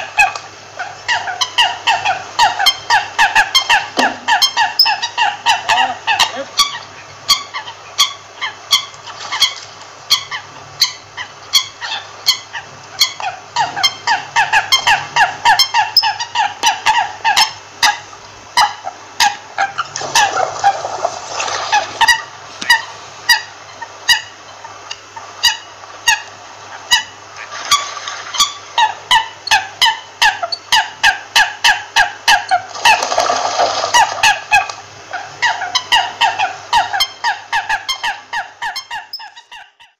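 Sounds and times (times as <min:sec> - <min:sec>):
coots calling: 0:00.0 - 0:39.9.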